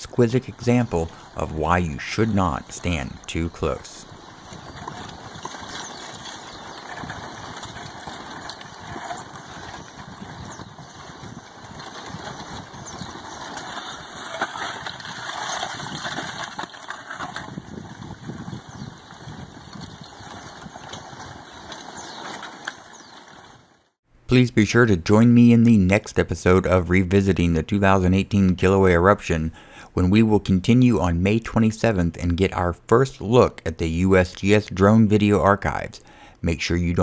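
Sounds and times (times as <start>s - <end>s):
rock blocks clinking and tumbling: 0.1s - 23.5s.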